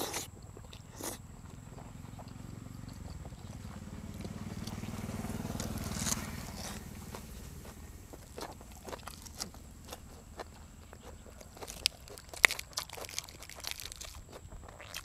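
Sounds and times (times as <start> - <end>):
wet chewing and lip-smacking: 0.0 - 15.0
passing vehicle engine drone: 1.2 - 11.9.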